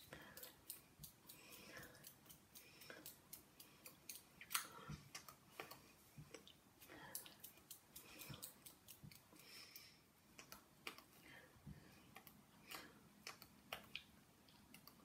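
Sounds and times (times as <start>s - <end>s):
soft hand clicks and brushing: 0.2s - 11.2s.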